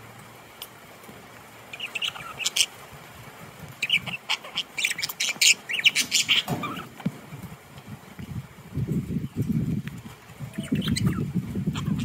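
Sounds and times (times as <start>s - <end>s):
budgerigars chirping and squawking: 1.7s - 2.8s, 3.8s - 7.0s, 10.5s - 12.0s.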